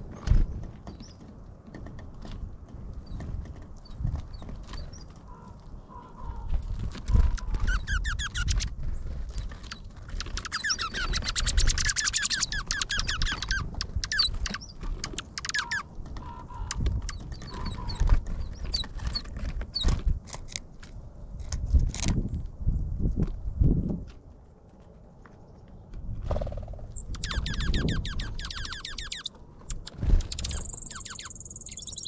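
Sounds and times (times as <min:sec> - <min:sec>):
beaks pecking seed on feeder: 0:07.1 - 0:19.6, 0:27.0 - 0:32.0
high bird chirps: 0:07.2 - 0:08.7, 0:09.6 - 0:18.9, 0:26.9 - 0:32.0.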